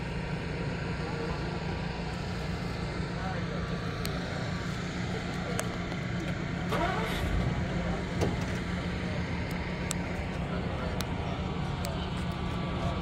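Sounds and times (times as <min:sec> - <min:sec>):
faint voices: 0:00.0 - 0:13.0
steady low rumble: 0:00.0 - 0:13.0.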